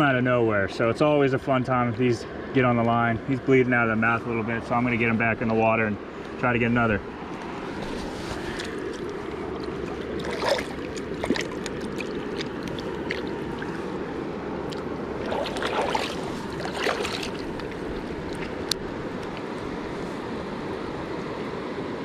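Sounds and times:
river water rushing: 7.1s - 22.0s
short splashes and knocks: 7.8s - 14.0s, 14.6s - 19.4s.

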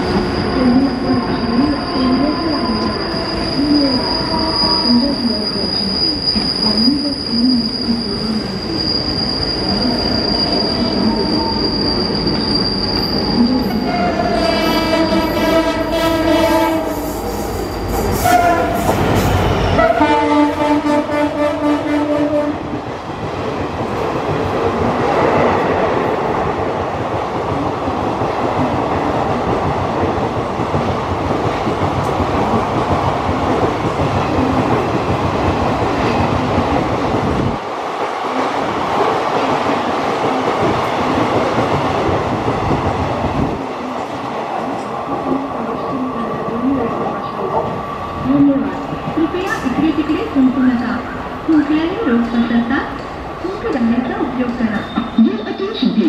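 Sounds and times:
train coaches rumbling and rattling: 0.0s - 56.0s
locomotive horn blasts: 13.9s - 17.0s, 18.2s - 18.9s, 19.8s - 22.6s.

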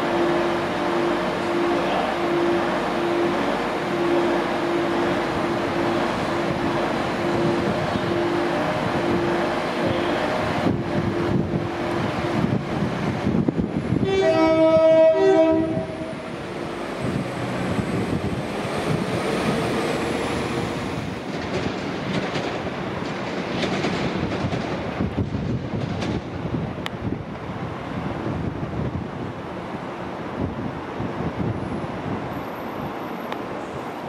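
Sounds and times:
diesel train engine and wheels: 0.0s - 34.0s
two-note train horn: 0.2s - 6.6s, 7.2s - 8.6s, 14.0s - 16.4s.

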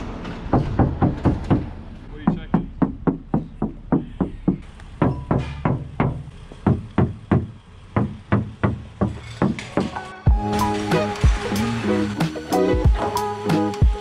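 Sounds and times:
bass-heavy subwoofer beat: 0.7s - 8.8s, 10.3s - 14.0s
held musical notes: 10.0s - 14.0s.

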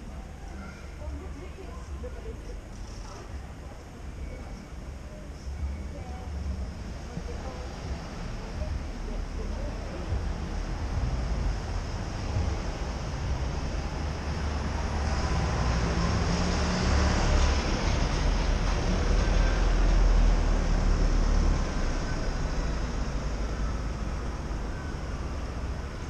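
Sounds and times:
bus diesel engine: 0.0s - 26.0s
cars passing: 6.3s - 26.0s.

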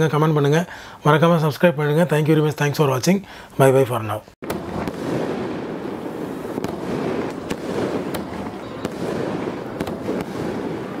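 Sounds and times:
firework pops: 4.4s - 11.0s
fireworks crackling: 4.4s - 11.0s.

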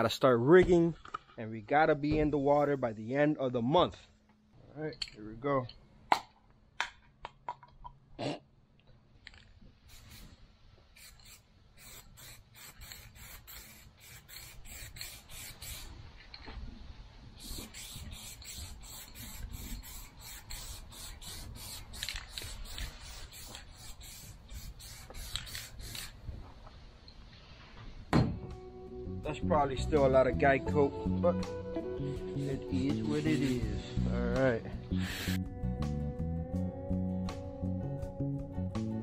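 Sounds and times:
spray can hissing bursts: 9.9s - 16.0s, 17.4s - 26.2s, 32.1s - 33.8s, 34.9s - 35.4s.

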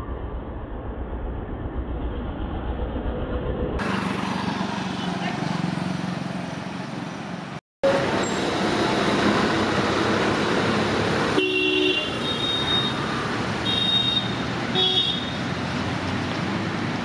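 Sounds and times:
road traffic: 0.0s - 17.0s
vehicle horns honking: 11.4s - 15.4s.

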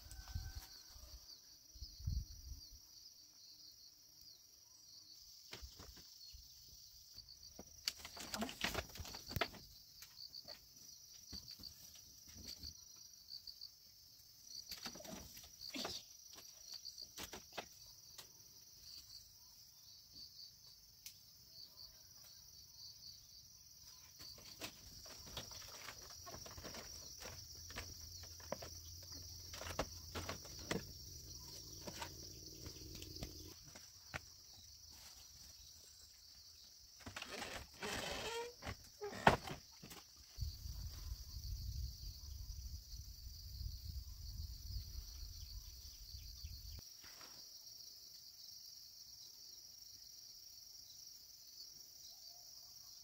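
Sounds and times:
insects chirring trill: 0.0s - 52.2s.

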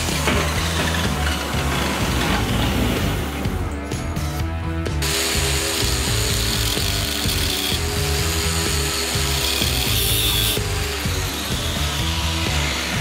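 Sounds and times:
background music: 0.0s - 13.0s
angle grinder cutting steel: 5.0s - 13.0s.

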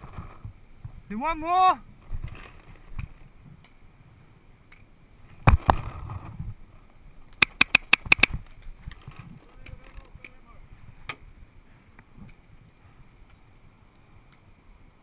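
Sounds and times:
paintball marker shots: 7.4s - 8.4s.

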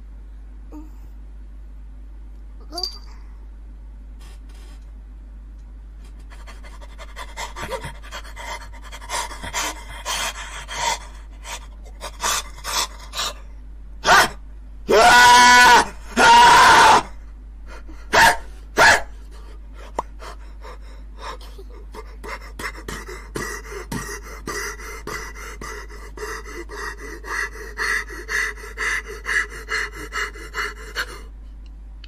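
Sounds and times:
rhythmic panting gasps: 6.0s - 13.5s, 17.6s - 31.4s
man screaming: 14.0s - 17.1s.

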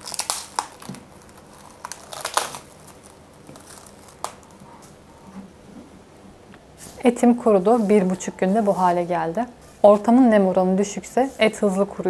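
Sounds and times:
cling film crinkling: 0.0s - 5.2s.

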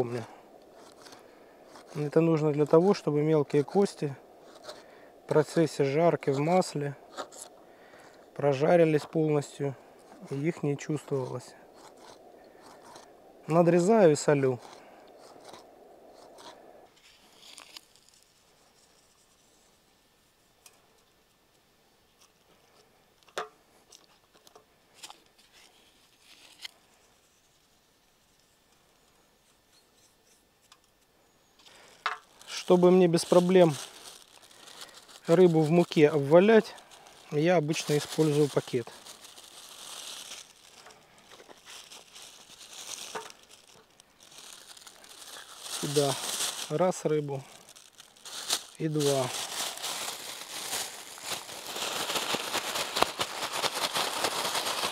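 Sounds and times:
low hiss: 0.0s - 53.3s
plastic bag crinkling: 10.1s - 16.6s, 31.6s - 54.9s.

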